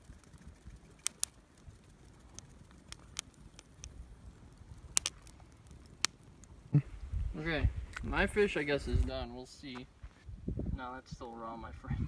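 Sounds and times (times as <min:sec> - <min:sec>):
campfire crackling: 0:00.0 - 0:11.7
sharp fire pops: 0:00.9 - 0:07.3.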